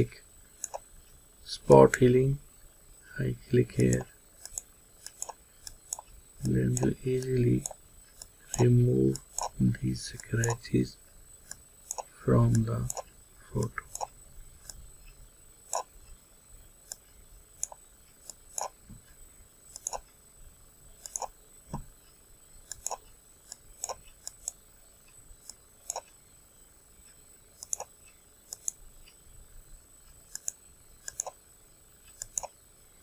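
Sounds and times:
computer mouse clicking: 0:00.6 - 0:00.9, 0:03.7 - 0:09.6, 0:10.2 - 0:10.6, 0:11.4 - 0:16.2, 0:16.8 - 0:18.8, 0:19.7 - 0:20.1, 0:21.0 - 0:21.9, 0:22.6 - 0:26.2, 0:27.0 - 0:29.2, 0:30.1 - 0:31.4, 0:32.0 - 0:32.6.

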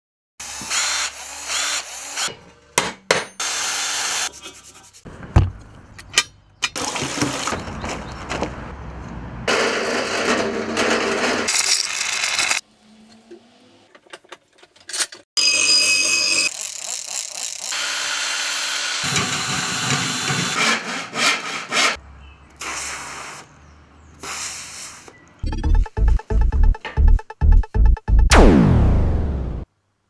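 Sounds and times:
harsh power tool noise: 0:00.4 - 0:02.3, 0:16.5 - 0:20.6.

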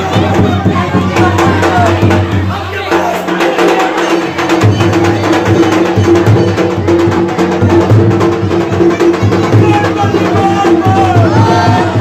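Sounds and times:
large drum beaten rapidly: 0:00.0 - 0:12.0.

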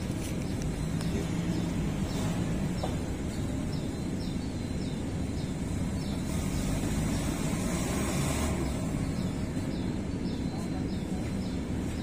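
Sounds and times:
engine rumbling: 0:00.0 - 0:12.0
faint high chirp: 0:08.6 - 0:12.0.

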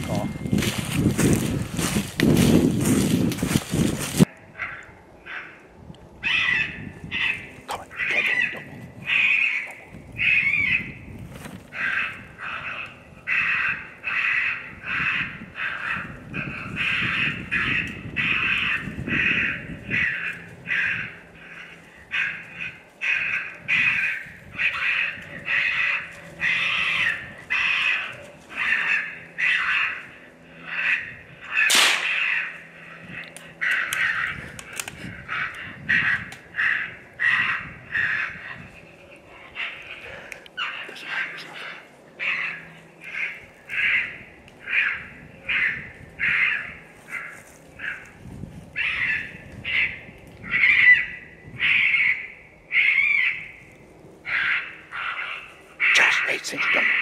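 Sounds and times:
raccoon call squalling cries: 0:06.2 - 0:11.0, 0:11.7 - 0:57.0
raccoon squalls: 0:06.3 - 0:10.8, 0:54.3 - 0:57.0.

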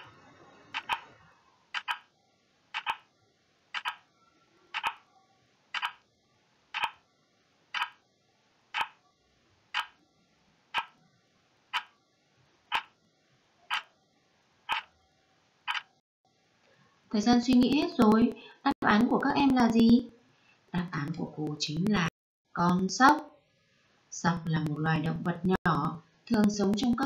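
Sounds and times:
clock ticking: 0:00.8 - 0:01.1, 0:01.7 - 0:02.0, 0:02.7 - 0:03.0, 0:03.7 - 0:04.0, 0:04.8 - 0:05.0, 0:05.7 - 0:06.0, 0:06.7 - 0:07.0, 0:07.7 - 0:08.0, 0:08.7 - 0:09.0, 0:09.7 - 0:10.0, 0:10.7 - 0:10.9, 0:11.7 - 0:11.9, 0:12.7 - 0:12.9, 0:14.7 - 0:14.9, 0:24.4 - 0:27.0.

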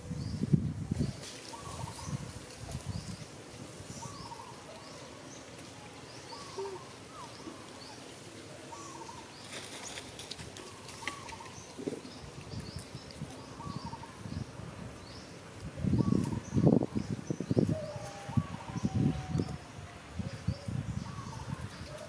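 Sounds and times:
birds chirping: 0:00.0 - 0:22.0
faint clicks and rustles: 0:09.3 - 0:13.5
lower bird call: 0:16.0 - 0:21.9.

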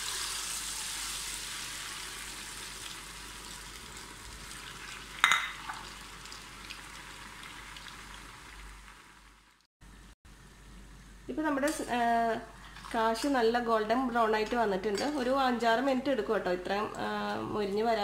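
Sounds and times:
dough sizzling in hot oil: 0:00.0 - 0:09.7.

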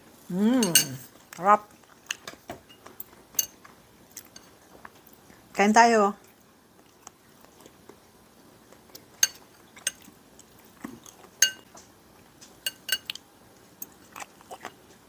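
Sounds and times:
fork clinking against dish: 0:09.2 - 0:10.1, 0:11.4 - 0:11.7, 0:12.6 - 0:13.2.

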